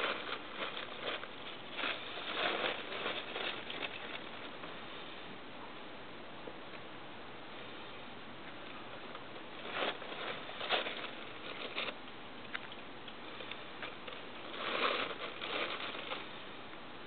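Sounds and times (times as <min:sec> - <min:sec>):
plastic crinkling and rustling: 0:00.0 - 0:04.7, 0:09.4 - 0:16.4.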